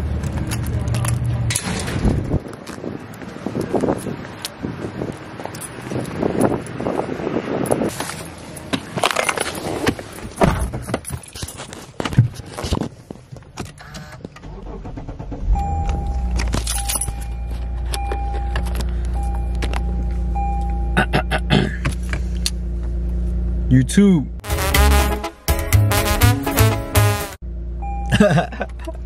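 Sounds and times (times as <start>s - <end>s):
keys jangling: 5.4s - 6.7s, 16.3s - 18.8s
car engine starting and idling: 13.8s - 28.9s
dashboard warning chime: 15.5s - 21.3s, 27.8s - 28.4s.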